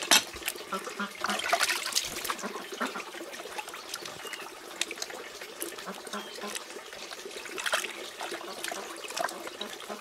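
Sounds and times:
water sloshing in a plastic basin: 0.0 - 10.0
water trickling: 0.0 - 10.0.

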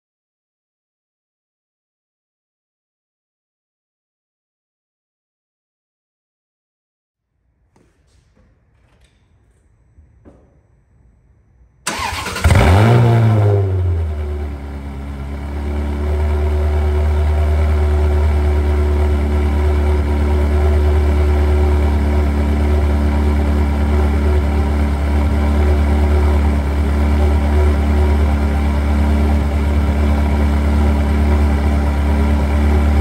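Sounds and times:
sports car engine starting and idling: 11.8 - 33.0.

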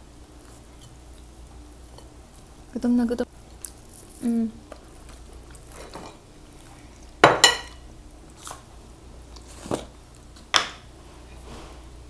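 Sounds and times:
tableware clinks and knocks: 7.2 - 7.8.

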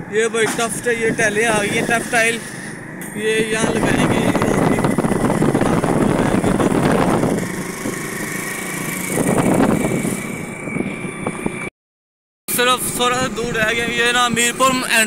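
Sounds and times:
road and wind noise: 0.0 - 11.7, 12.5 - 15.0
thin steady whine: 0.0 - 11.7
motorcycle engine running: 3.2 - 10.6.

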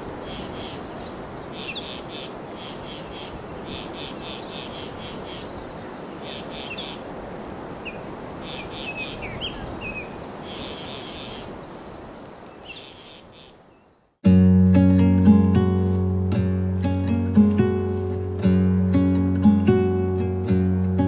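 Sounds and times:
insects chirping in pulsed trills: 0.0 - 13.6
steady noisy hiss: 0.0 - 21.0.

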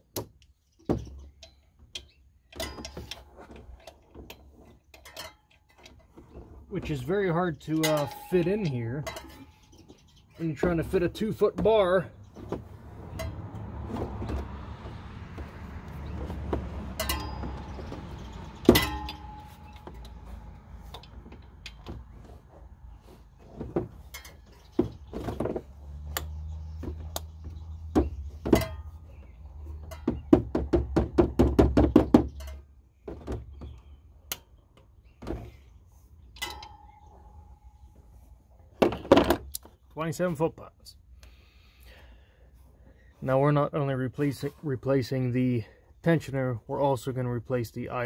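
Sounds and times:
metallic clinks and knocks: 0.4 - 11.2, 12.2 - 22.6, 23.4 - 34.6, 36.3 - 38.0.

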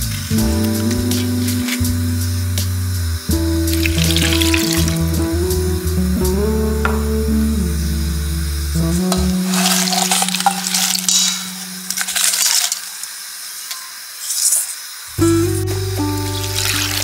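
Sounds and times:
background music with held note: 0.0 - 12.3, 15.2 - 17.0
shells dropped into a stockpot: 9.5 - 13.0.

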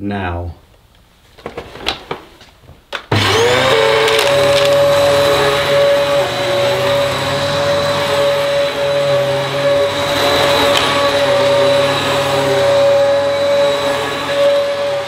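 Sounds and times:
vacuum cleaner running: 3.1 - 15.0.

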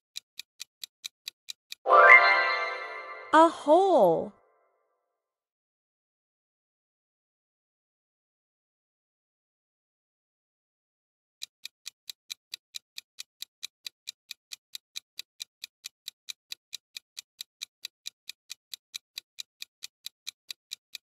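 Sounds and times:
clock ticking: 0.1 - 3.0, 11.4 - 21.0.

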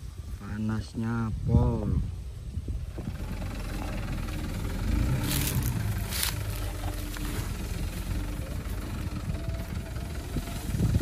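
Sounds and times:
diesel truck engine running: 2.7 - 11.0.

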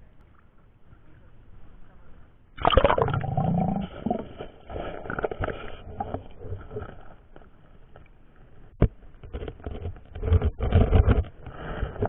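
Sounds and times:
water movement underwater: 0.0 - 12.0
muffled underwater knocks and scrapes: 4.0 - 12.0.

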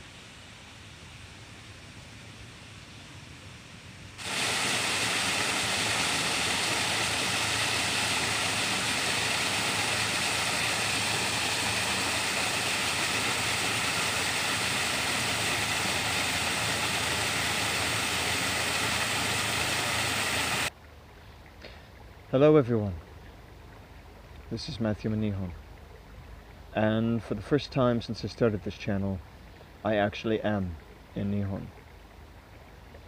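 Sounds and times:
waterfall rushing: 4.2 - 20.7
stream trickling: 4.2 - 33.0.

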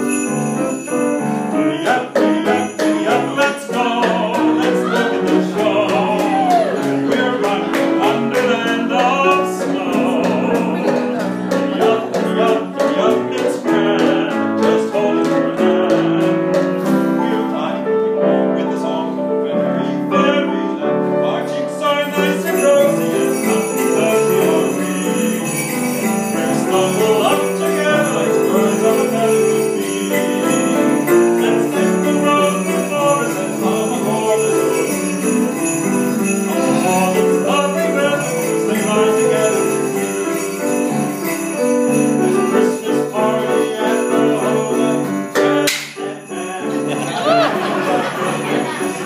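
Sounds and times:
sleigh bells jingling: 0.0 - 17.8, 21.4 - 49.0
man singing: 0.0 - 49.0
piano accompaniment: 0.0 - 49.0.

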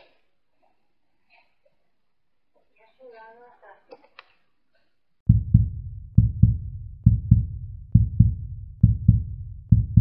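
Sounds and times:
heartbeat thumps: 5.3 - 10.0.

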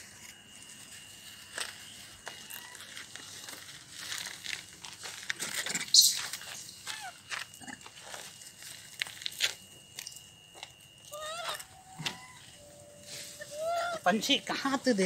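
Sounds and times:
plastic bag crinkling: 1.4 - 6.9
footsteps on gravel: 1.4 - 9.8.

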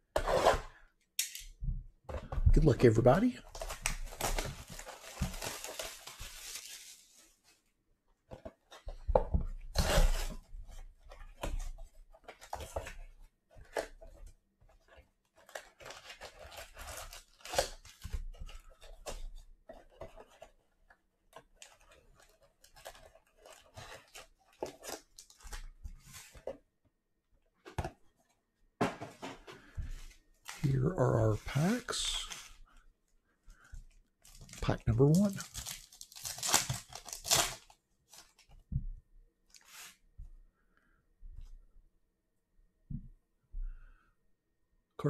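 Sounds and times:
foil and cardboard crinkling: 3.5 - 7.5, 34.2 - 38.5
cardboard box tearing: 35.4 - 37.7.

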